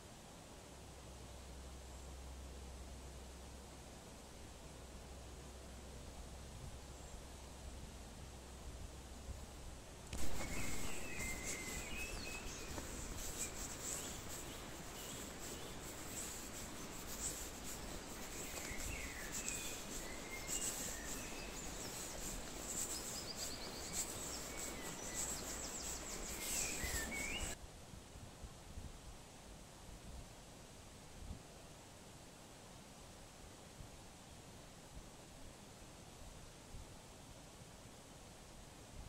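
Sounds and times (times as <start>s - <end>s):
bird trill: 10.2s - 16.3s, 18.3s - 27.6s
birds chirping: 10.2s - 27.6s.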